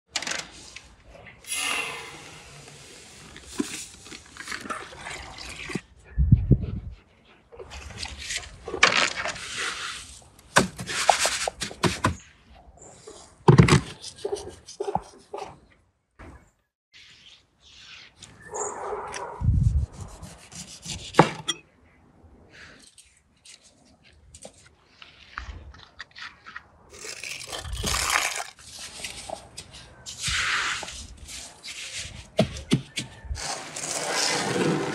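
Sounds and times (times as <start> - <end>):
wet salt crunching and scraping: 22.6 - 32.4.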